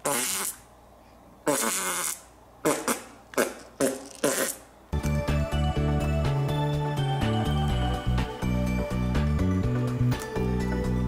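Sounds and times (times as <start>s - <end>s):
cartoon fart sounds: 0.0s - 0.6s, 1.4s - 4.6s
background music: 4.9s - 11.0s.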